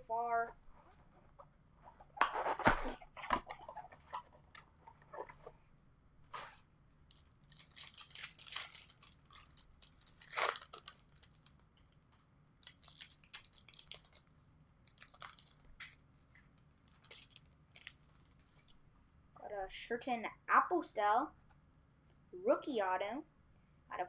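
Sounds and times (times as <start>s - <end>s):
card wrappers tearing and crinkling: 2.2s - 4.2s, 7.1s - 11.7s, 12.6s - 16.0s, 16.8s - 18.8s.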